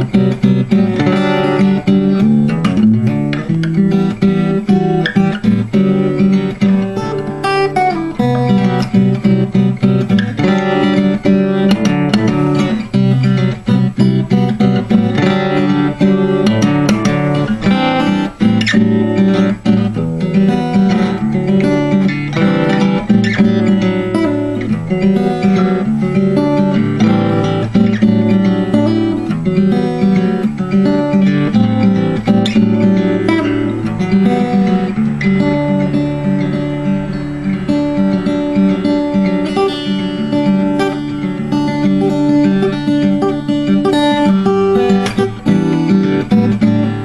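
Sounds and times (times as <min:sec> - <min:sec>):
fingerpicked acoustic guitar: 0:00.0 - 0:47.0.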